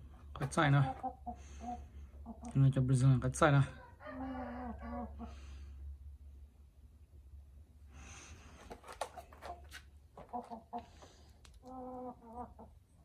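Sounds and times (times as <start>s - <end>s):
rooster clucking: 3.8s - 5.4s, 8.9s - 12.8s.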